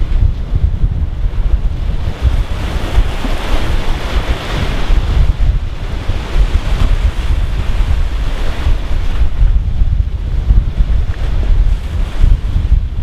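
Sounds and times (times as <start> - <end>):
sea water rushing past boat: 0.0 - 13.0
wind buffeting microphone: 0.0 - 13.0.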